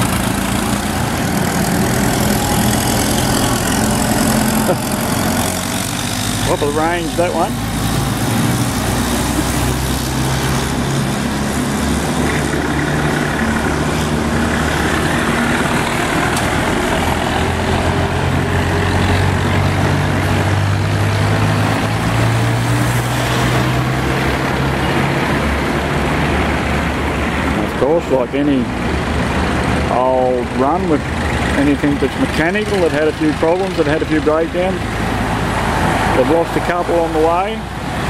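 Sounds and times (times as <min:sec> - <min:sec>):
tractor engines running: 0:00.0 - 0:38.0.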